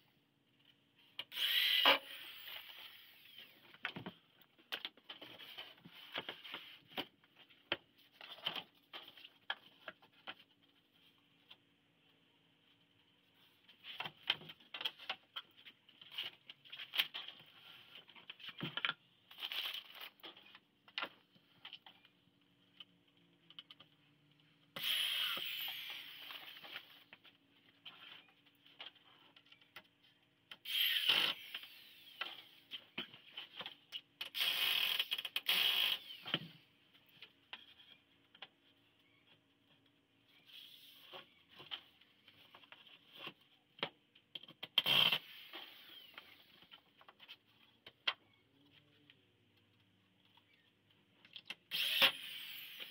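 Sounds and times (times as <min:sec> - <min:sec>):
cordless drill into wood: 0:01.3 - 0:03.6, 0:24.8 - 0:26.6, 0:30.6 - 0:32.5, 0:34.3 - 0:36.4, 0:44.8 - 0:46.5, 0:51.7 - 0:52.9.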